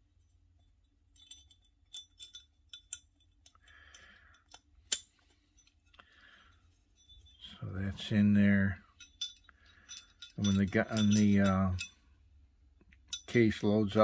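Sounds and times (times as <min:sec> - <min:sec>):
small metal clicks and scraping: 0:00.2 - 0:07.6, 0:08.9 - 0:12.1.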